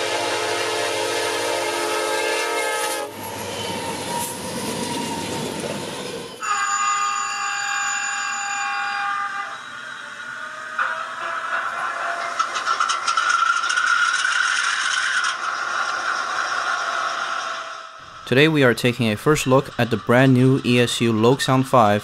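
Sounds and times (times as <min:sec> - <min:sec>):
diesel locomotive horn: 0:00.0 - 0:11.6
freight train wheels rumbling: 0:00.0 - 0:22.0.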